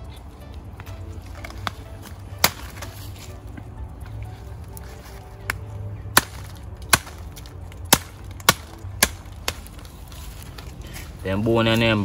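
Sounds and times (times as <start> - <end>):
knife chopping meat: 2.4 - 2.9.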